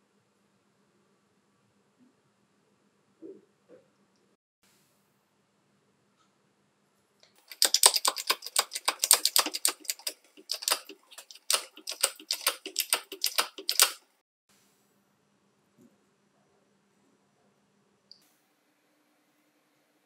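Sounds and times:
sharp clicks and taps: 0:07.2 - 0:14.0.

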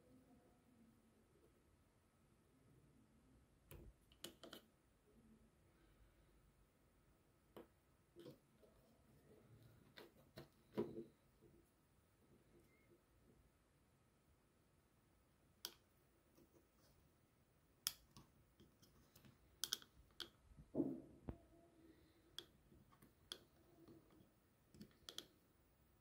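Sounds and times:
plastic clicks and taps: 0:03.7 - 0:04.7, 0:17.8 - 0:20.4, 0:22.3 - 0:25.4.

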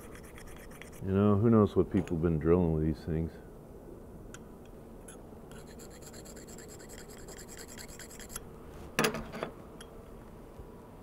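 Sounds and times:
hand stone rubbing on steel: 0:00.0 - 0:01.1, 0:05.5 - 0:08.4.

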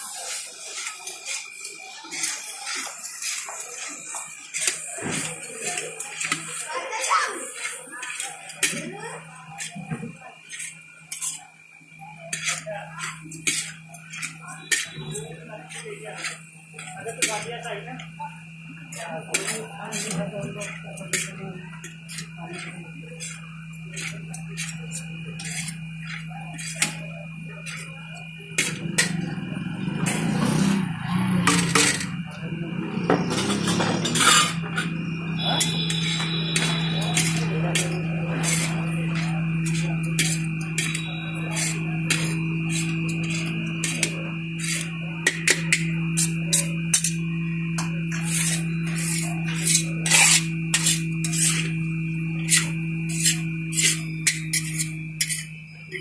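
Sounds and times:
metal spatula scraping a wok: 0:10.5 - 0:11.4, 0:12.3 - 0:17.5, 0:19.3 - 0:27.0, 0:33.0 - 0:51.8, 0:52.4 - 0:55.6
steady low hum: 0:10.6 - 0:56.0.

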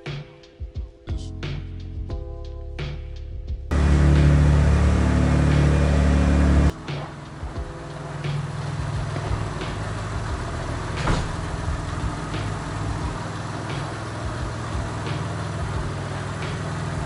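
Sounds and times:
car engine idling: 0:03.7 - 0:17.0
knock: 0:11.0 - 0:11.4.

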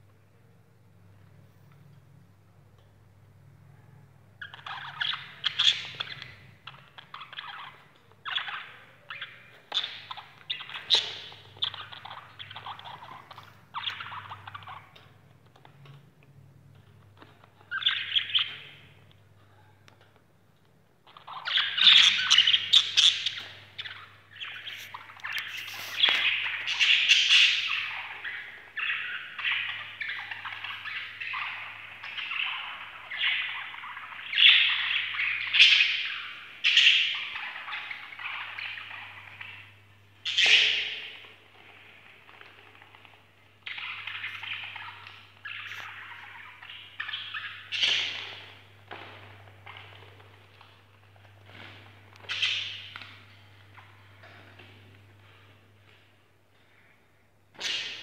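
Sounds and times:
budgerigars chattering and chirping: 0:04.4 - 0:15.0, 0:21.1 - 0:50.6, 0:51.2 - 0:53.1.

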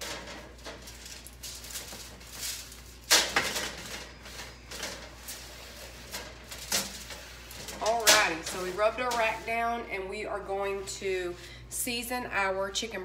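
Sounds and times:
paper towel scraping metal rack: 0:00.0 - 0:10.8
metal rack clattering on pan: 0:06.1 - 0:09.4.

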